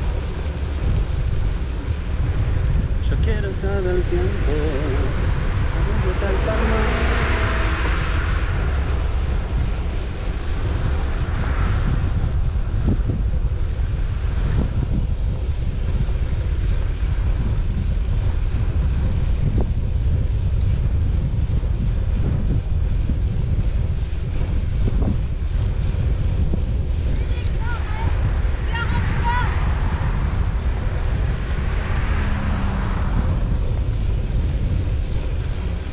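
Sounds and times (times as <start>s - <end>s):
wind buffeting microphone: 0.0s - 35.9s
passing vehicle hiss: 29.6s - 33.6s.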